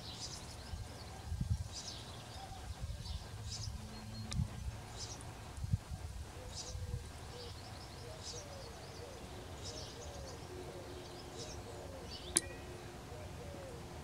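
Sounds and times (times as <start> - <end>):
bird chirping: 6.3 - 13.8
bird cooing: 6.3 - 14.0.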